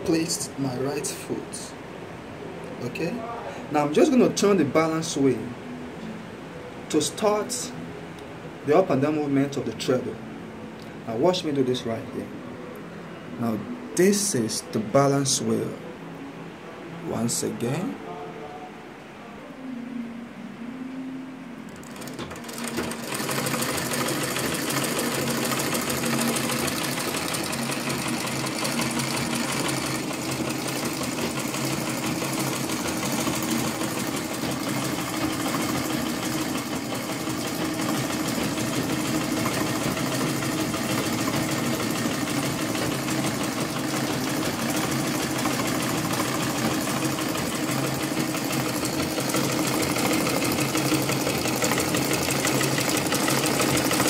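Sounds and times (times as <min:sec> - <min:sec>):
treadle sewing machine clatter: 0:21.8 - 0:54.0.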